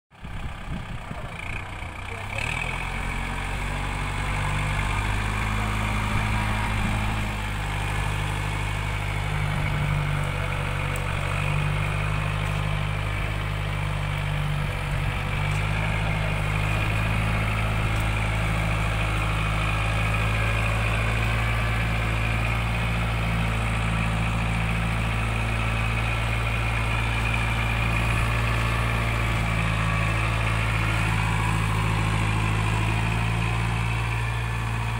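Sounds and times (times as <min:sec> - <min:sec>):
tractor diesel engine under load: 0:00.1 - 0:34.9.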